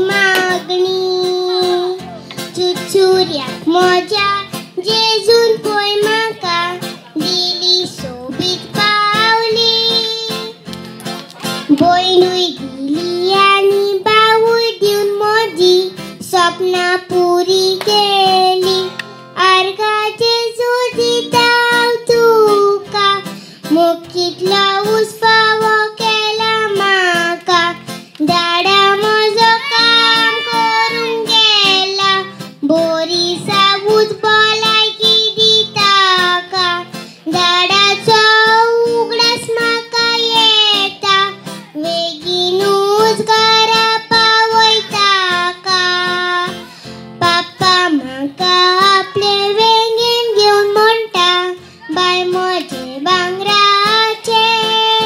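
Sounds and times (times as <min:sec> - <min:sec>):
girl singing into a microphone: 0:00.0 - 0:55.0
strummed acoustic guitar: 0:00.0 - 0:55.0.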